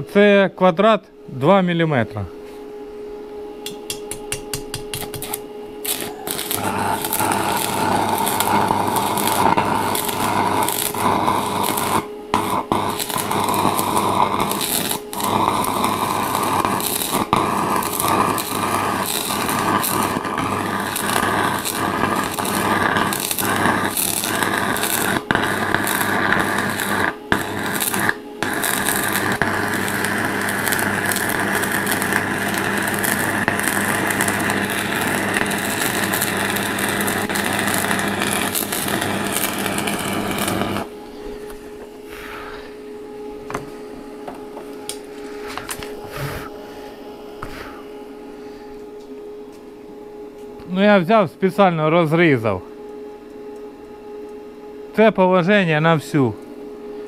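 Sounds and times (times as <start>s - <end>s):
welding arc crackling: 3.6s - 42.5s.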